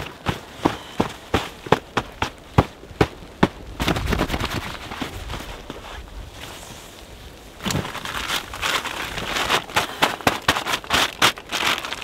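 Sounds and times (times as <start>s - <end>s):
camp gear being handled: 0.0s - 12.0s
footsteps in icy snow: 3.1s - 12.0s.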